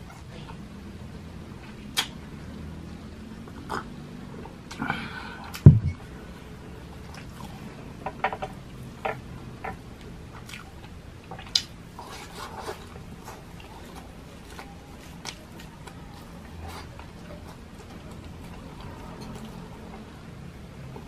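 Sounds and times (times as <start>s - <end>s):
dull thump: 5.6s - 6.0s.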